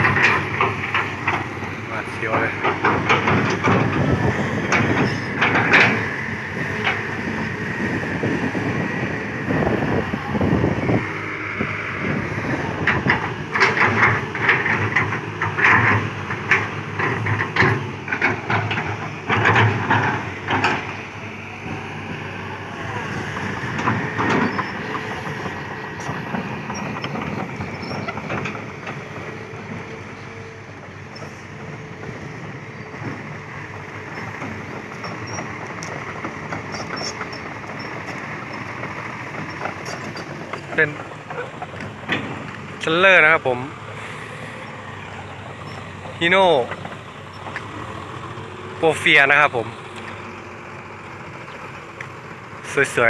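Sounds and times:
metal clanks and squeals: 0.0 - 7.1, 23.4 - 31.5, 34.0 - 48.2
excavator engine and hydraulics: 0.0 - 53.0.

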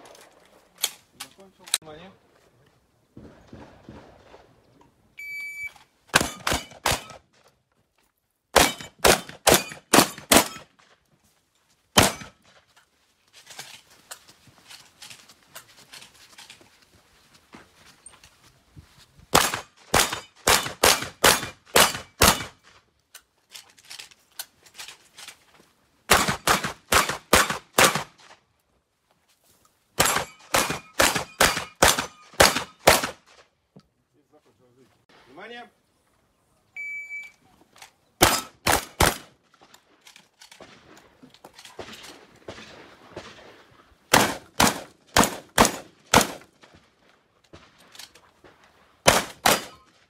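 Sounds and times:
gun handling noise: 0.0 - 1.8, 8.8 - 17.0, 21.4 - 25.8, 37.3 - 42.6, 45.7 - 48.7
shotgun shots: 3.2 - 4.6, 6.1 - 7.2, 8.5 - 10.8, 12.0 - 12.4, 19.3 - 22.6, 26.1 - 28.3, 30.0 - 33.4, 38.2 - 39.4, 40.6 - 46.7, 49.0 - 49.9
shot timer beep: 5.2 - 5.8, 36.8 - 37.4.

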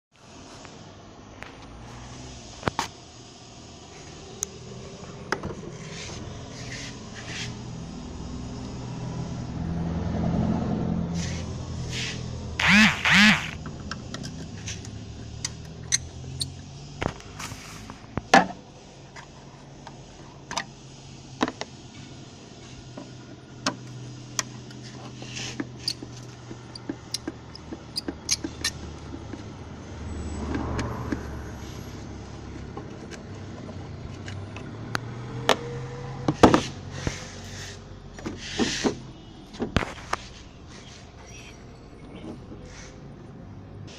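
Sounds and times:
steady low hum: 0.1 - 30.0.

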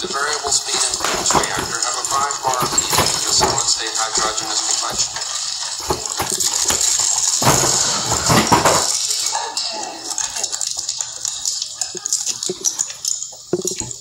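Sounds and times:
cardboard box crushing: 0.0 - 9.2.

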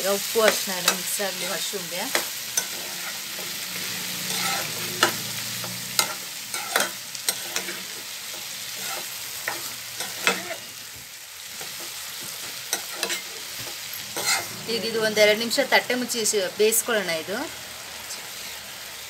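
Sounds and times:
mushrooms sizzling in oil: 0.0 - 19.0
metal spoon clacking against pan: 4.3 - 10.6.

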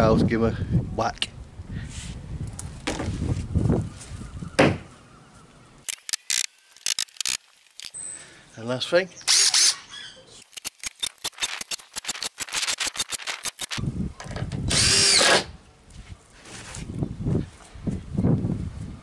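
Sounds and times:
power drill clicking and rumbling: 10.4 - 13.8, 14.7 - 15.4.

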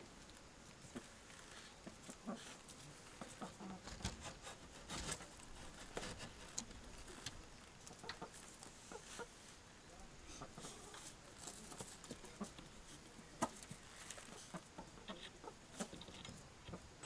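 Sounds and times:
hens clucking: 2.0 - 4.4, 7.8 - 9.4, 10.3 - 12.8, 13.4 - 16.9.

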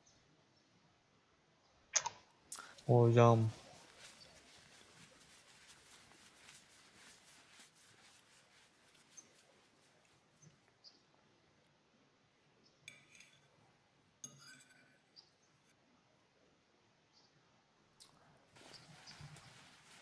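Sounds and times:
faint hiss: 2.5 - 10.8, 18.0 - 20.0.

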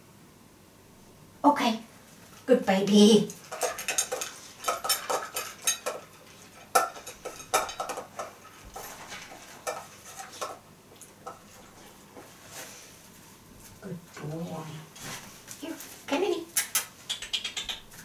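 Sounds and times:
metal food bowl clinking: 3.4 - 10.6.

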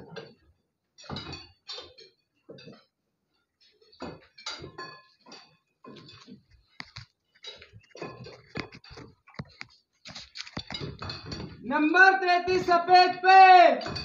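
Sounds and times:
metal clinking on metal: 1.0 - 2.9, 3.6 - 11.6, 13.8 - 14.0.

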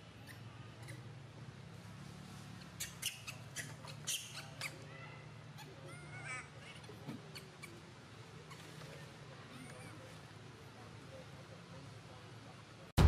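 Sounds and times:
monkey warbling call: 2.8 - 10.2.

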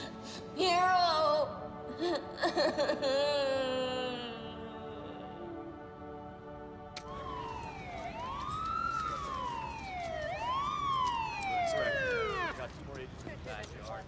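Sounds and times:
emergency vehicle siren wailing: 4.7 - 13.3.

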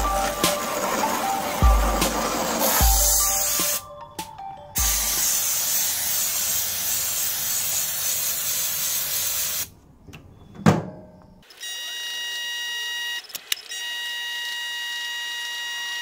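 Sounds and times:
spray can hissing: 0.0 - 3.8, 4.8 - 9.7.

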